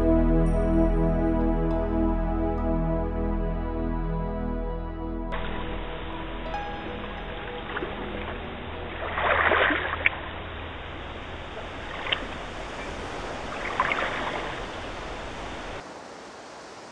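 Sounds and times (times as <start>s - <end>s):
small waves lapping on pebbles: 7.4s - 16.9s.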